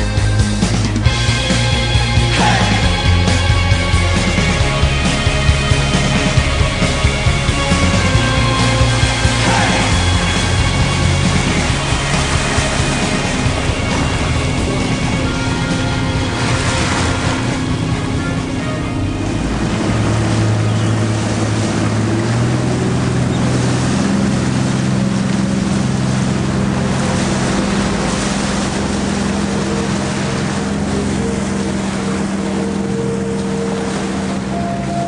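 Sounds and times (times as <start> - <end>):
boat engine running: 0.0 - 35.0
sea noise: 0.0 - 35.0
wind: 0.0 - 35.0.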